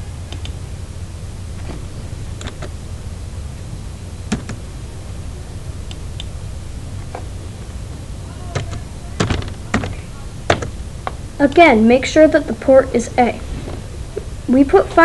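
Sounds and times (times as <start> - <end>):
low background hum: 0.0 - 15.0
keyboard and mouse clicks: 2.4 - 2.7, 4.3 - 4.6.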